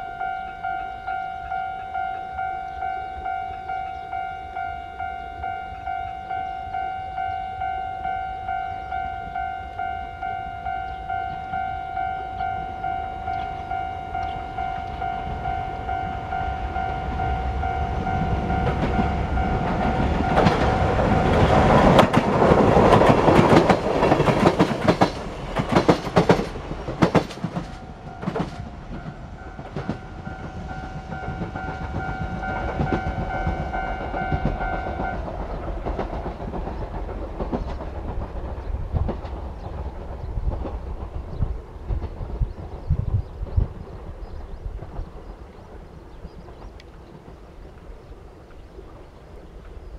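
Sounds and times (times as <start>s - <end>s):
two-tone crossing warning bell: 0.0s - 26.1s, 27.2s - 37.6s
train wheels clattering over rail joints: 17.0s - 47.6s.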